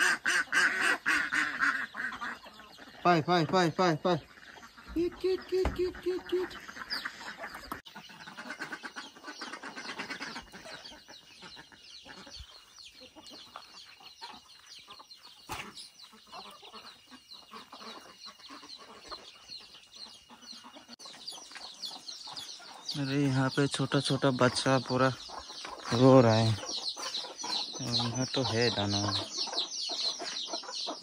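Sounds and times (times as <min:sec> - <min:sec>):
chicks peeping: 0:00.0 - 0:31.0
hens clucking: 0:00.0 - 0:31.0.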